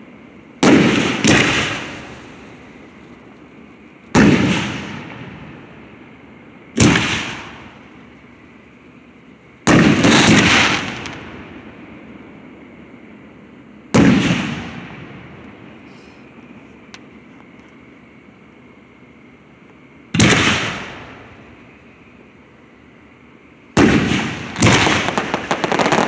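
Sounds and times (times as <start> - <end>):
fireworks booming with echo: 0.6 - 3.3, 4.1 - 5.9, 6.6 - 8.1, 9.6 - 11.9, 13.9 - 16.2, 20.1 - 21.6, 23.7 - 26.0.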